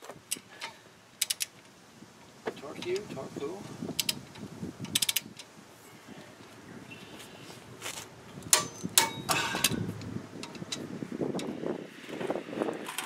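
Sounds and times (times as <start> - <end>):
metallic clicks and clinks: 0.3 - 1.6.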